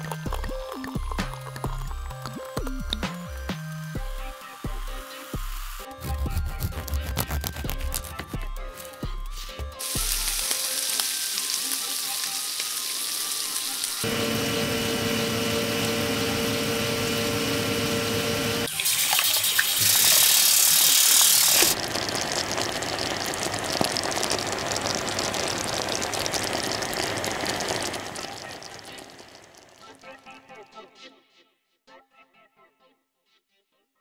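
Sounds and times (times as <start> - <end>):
tap water running into metal pot: 0.0 - 4.1, 18.6 - 30.0
restaurant kitchen background noise: 9.8 - 30.0
sauce sizzling in frying pan: 9.8 - 30.0.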